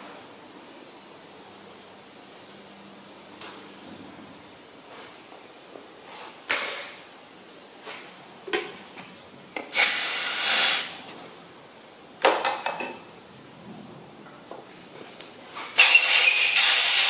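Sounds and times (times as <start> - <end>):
aerosol spray can hissing: 9.8 - 11.0, 15.8 - 17.0.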